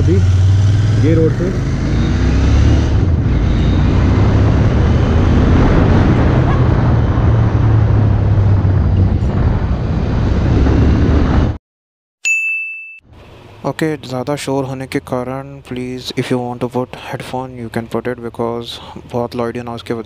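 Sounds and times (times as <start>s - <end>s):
wind rushing over microphone: 0.0s - 11.6s.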